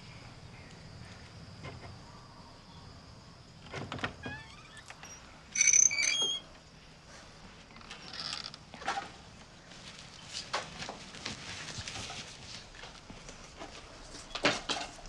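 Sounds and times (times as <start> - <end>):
wooden door creaking: 3.6 - 6.5, 7.7 - 9.0.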